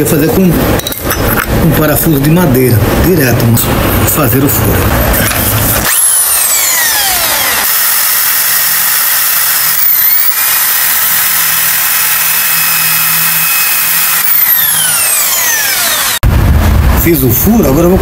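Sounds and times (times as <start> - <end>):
electric drill boring into wood: 5.2 - 16.2.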